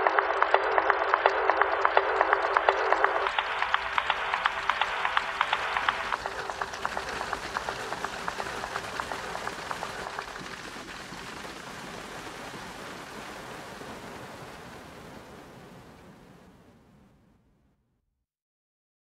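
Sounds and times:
rapid regular ticking: 0.0 - 12.2
surf breaking: 0.0 - 17.3.

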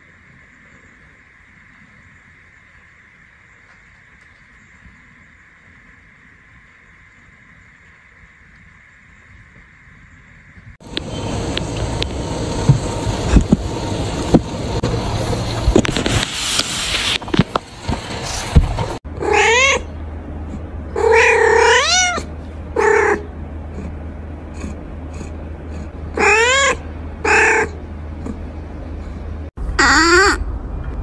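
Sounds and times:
cat meowing: 19.2 - 19.9, 21.0 - 23.3, 26.1 - 27.8.

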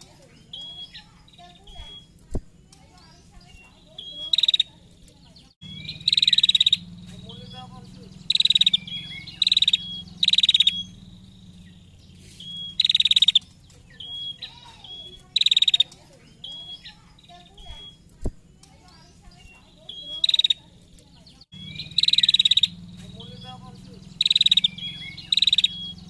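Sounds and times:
bird whistles and rattling trill: 0.0 - 26.0
low hum: 4.7 - 15.3, 20.8 - 26.0.

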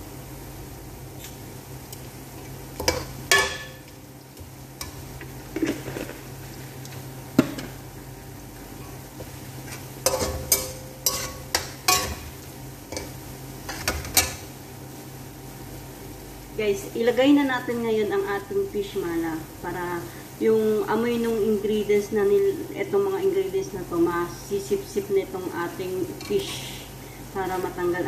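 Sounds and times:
food sizzling in oil: 2.4 - 16.5.

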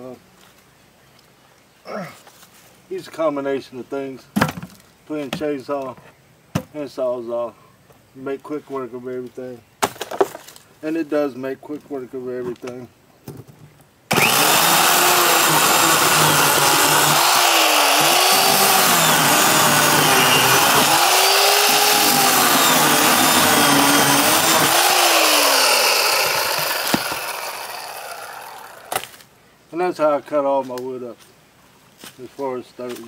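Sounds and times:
electric chainsaw cutting log: 14.1 - 29.2.

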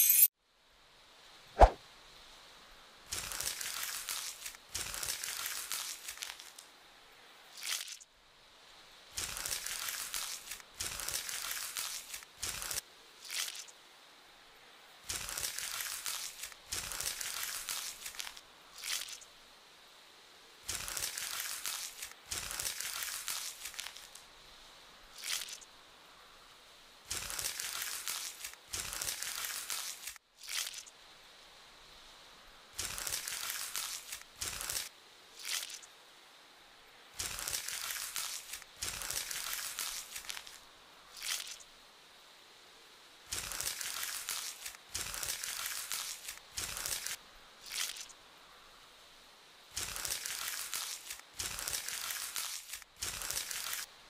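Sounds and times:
crinkling crunching sound effects: 3.1 - 6.7, 9.1 - 13.7, 15.0 - 19.2, 20.6 - 24.3, 25.2 - 25.7, 27.1 - 30.9, 32.8 - 35.8, 37.2 - 40.6, 41.2 - 41.6, 43.3 - 48.2, 49.7 - 53.9.

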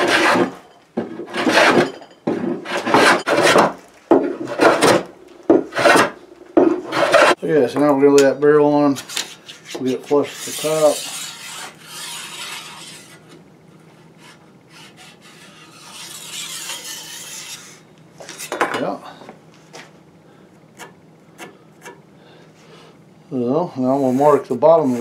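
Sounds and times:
pencil scraping on wood: 9.1 - 13.2, 14.2 - 17.8.

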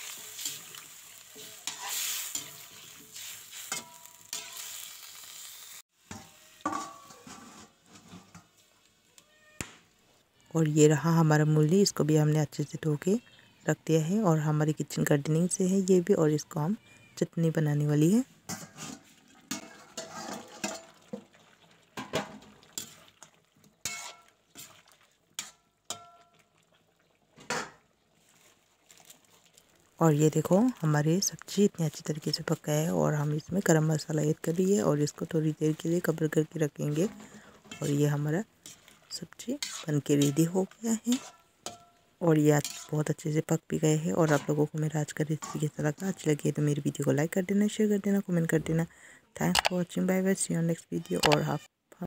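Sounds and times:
spatula scraping a pan: 0.0 - 5.0, 6.0 - 8.8, 18.5 - 21.0, 22.0 - 23.2, 23.8 - 26.2, 36.8 - 43.1, 44.1 - 45.7
vegetables sizzling in a pan: 0.0 - 9.1, 30.1 - 47.0
metal plate clinking: 6.1 - 7.6.

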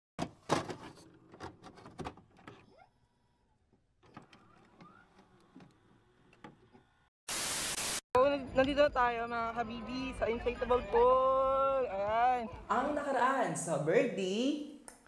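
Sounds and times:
burst of static hiss: 7.3 - 8.0.

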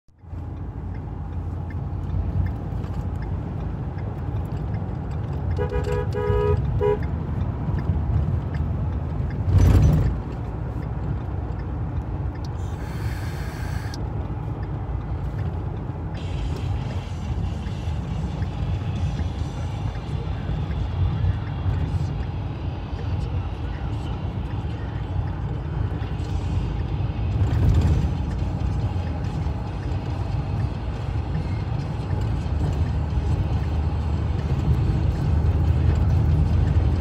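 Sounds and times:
road and engine rumble in cab: 0.0 - 37.0
two-tone car horn honks: 5.6 - 7.1.

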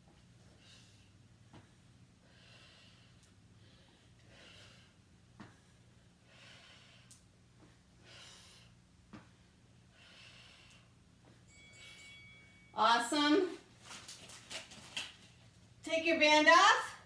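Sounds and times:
woman breathing while exercising: 0.0 - 12.7
low steady hum: 0.0 - 17.0.

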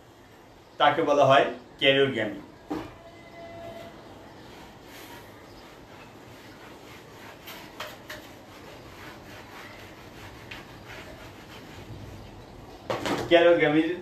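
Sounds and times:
eraser wiping whiteboard: 3.4 - 12.5.

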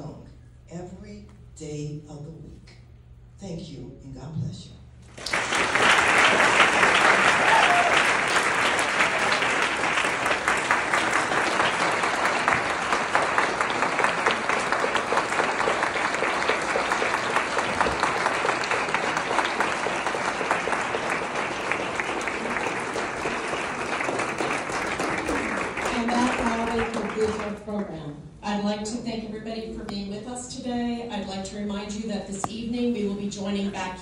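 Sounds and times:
audience applauding: 5.1 - 27.8.

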